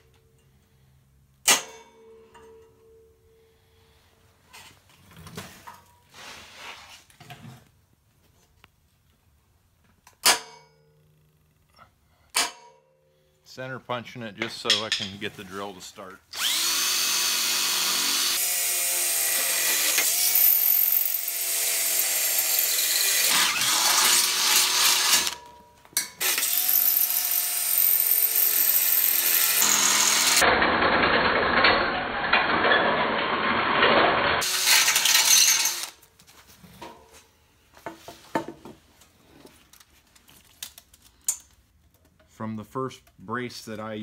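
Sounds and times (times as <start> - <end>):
cordless drill boring through steel: 16.3 - 25.4, 26.2 - 31.6, 33.4 - 36.0
clicks and handling sounds: 39.0 - 42.4.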